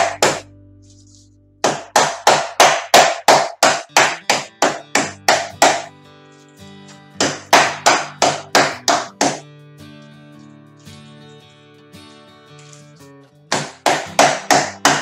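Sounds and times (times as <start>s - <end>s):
saucepan pounding meat thuds: 0.0s - 0.4s, 1.6s - 5.9s, 7.2s - 9.4s, 13.5s - 15.0s
background music: 0.0s - 15.0s.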